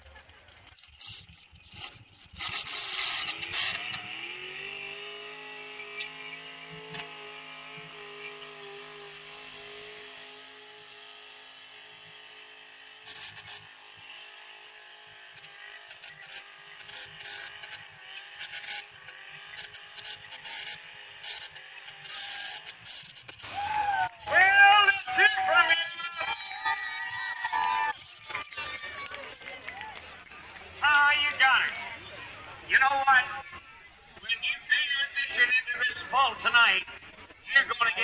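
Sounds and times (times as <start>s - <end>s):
diesel truck engine at full throttle: 0.0s - 38.0s
scattered clicks: 25.6s - 30.7s.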